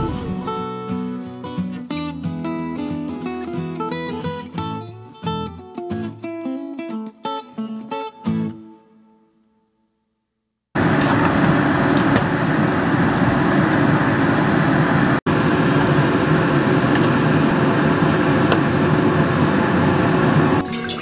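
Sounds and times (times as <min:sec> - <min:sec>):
range hood fan rushing: 0:10.8 - 0:20.6.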